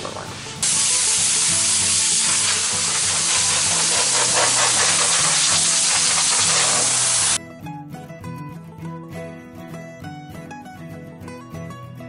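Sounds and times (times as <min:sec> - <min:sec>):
quiet background music: 0:00.0 - 0:12.0
hose nozzle spraying: 0:00.1 - 0:07.4.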